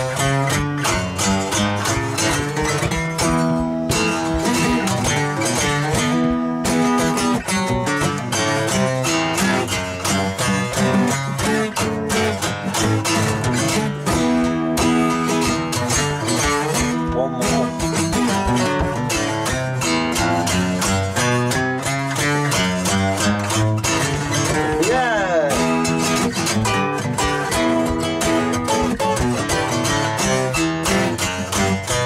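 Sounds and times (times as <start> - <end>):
acoustic guitars strummed: 0.0 - 32.0.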